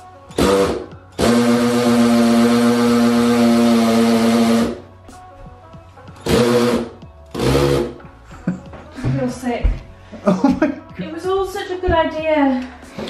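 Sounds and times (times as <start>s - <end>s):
cordless drill boring into wall: 0.3s - 4.8s, 6.2s - 8.0s.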